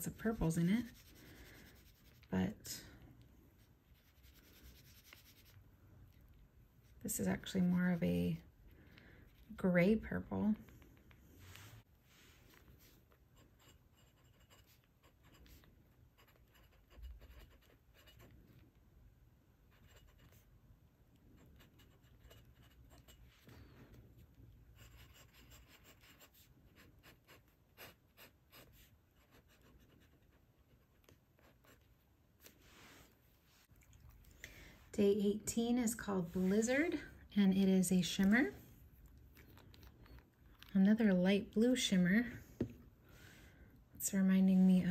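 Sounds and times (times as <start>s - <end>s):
pen nib scratching on paper: 0.0s - 2.6s, 3.9s - 5.6s, 13.1s - 18.6s, 19.7s - 20.5s, 21.4s - 23.5s, 24.7s - 31.9s.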